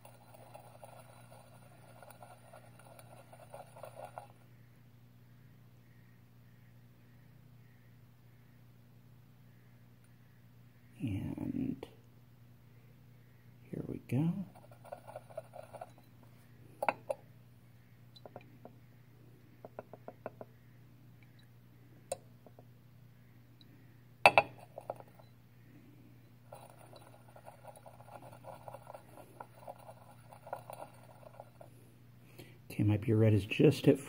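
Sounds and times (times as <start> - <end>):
low steady hum: 0.0 - 34.0
glass flask clinking and rattling: 14.6 - 16.2, 16.8 - 17.2, 24.3 - 25.2, 26.5 - 31.6.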